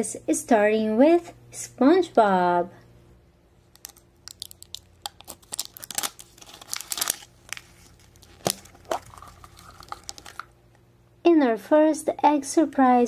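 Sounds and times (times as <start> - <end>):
wrapper crinkling and tearing: 3.7 - 10.5.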